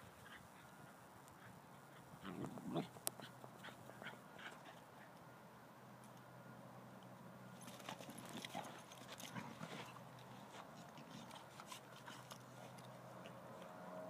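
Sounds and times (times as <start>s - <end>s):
paws scraping on dirt: 0.0s - 4.9s, 7.6s - 13.8s.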